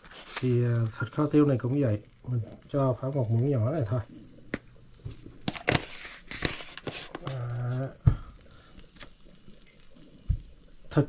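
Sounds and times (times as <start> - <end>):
plastic packaging rustling: 0.0 - 1.5, 4.7 - 9.3.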